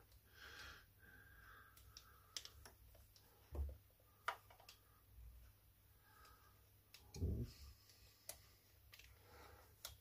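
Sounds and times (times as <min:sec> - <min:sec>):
faint clicks of small parts: 0:01.4 - 0:05.0, 0:06.0 - 0:10.0.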